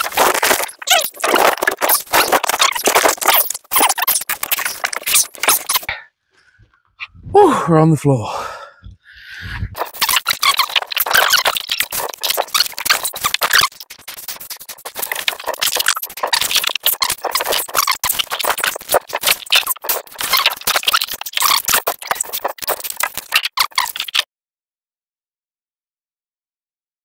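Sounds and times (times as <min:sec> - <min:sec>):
plastic wrapping crinkling: 0:00.0 - 0:05.8, 0:09.8 - 0:24.2.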